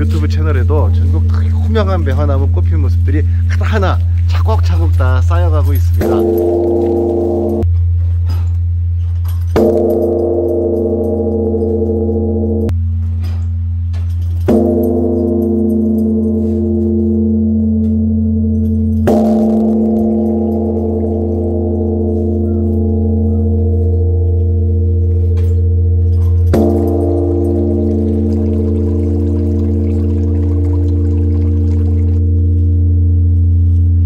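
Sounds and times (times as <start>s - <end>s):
large bronze bell struck: 4.6s - 7.7s, 9.4s - 12.8s, 14.0s - 34.0s.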